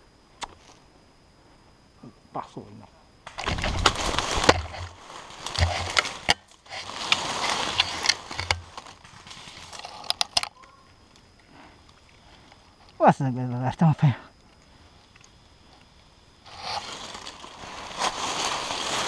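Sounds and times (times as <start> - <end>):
dull thuds of body movement: 3.3 - 9.6
dry leaves rustling and crackling: 3.3 - 10.1, 16.5 - 19.0.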